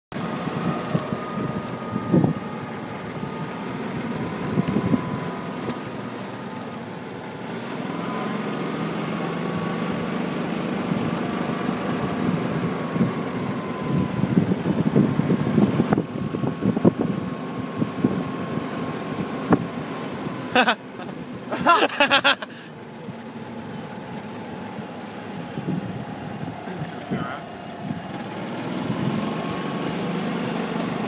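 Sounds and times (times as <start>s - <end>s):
motor humming with whine: 0.2s - 18.2s.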